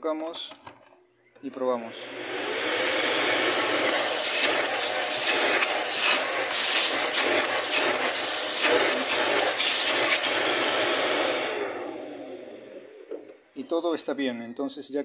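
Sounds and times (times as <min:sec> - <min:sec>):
vacuum cleaner running: 0:01.9 - 0:13.4.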